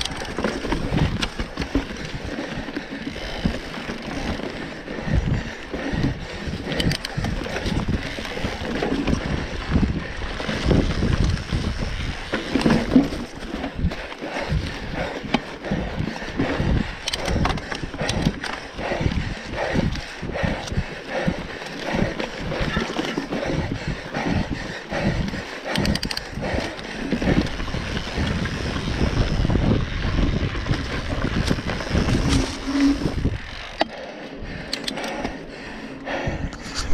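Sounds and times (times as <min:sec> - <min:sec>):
bike knocks and rattles: 0:00.0 - 0:19.8
tyres rumbling over dirt: 0:00.0 - 0:33.9
wind buffeting microphone: 0:05.0 - 0:33.8.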